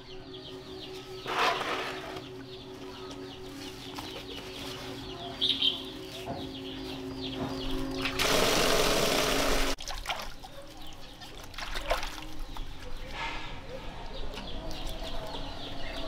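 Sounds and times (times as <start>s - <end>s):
small birds chirping: 0.0s - 16.0s
hands splashing in basin water: 9.8s - 10.6s, 11.2s - 12.8s.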